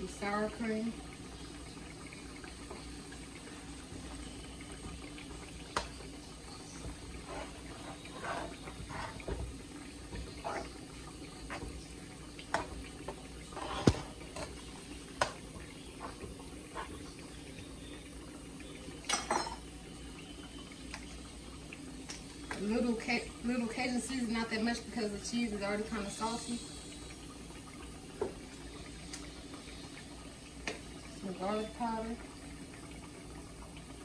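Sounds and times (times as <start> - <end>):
wet squelching of pasta stirring: 1.9 - 17.9.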